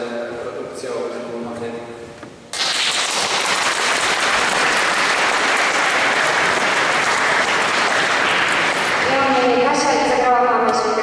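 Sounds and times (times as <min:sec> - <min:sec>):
audience applauding: 0:02.5 - 0:09.5.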